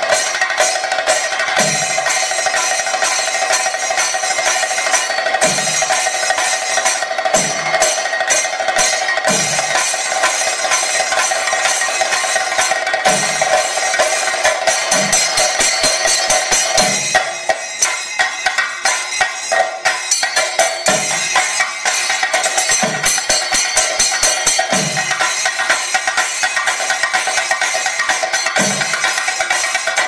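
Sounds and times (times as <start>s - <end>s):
drums struck in fast rolls: 0.0s - 17.3s, 20.4s - 30.0s
hand cymbals ringing: 0.0s - 30.0s.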